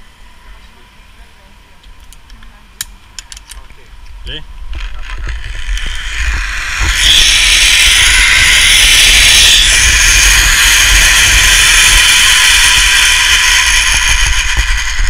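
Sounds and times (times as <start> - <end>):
zipline pulleys whirring on cable: 4.7 - 15.0.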